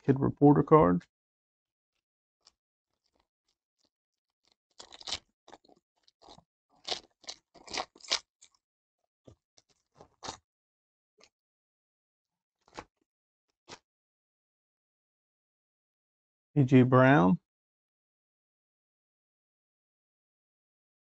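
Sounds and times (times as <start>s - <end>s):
foil wrapper crinkling and tearing: 4.4s - 8.6s.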